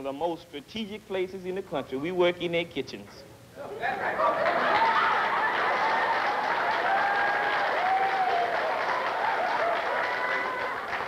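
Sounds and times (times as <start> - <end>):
audience applauding: 4.3 - 11.0.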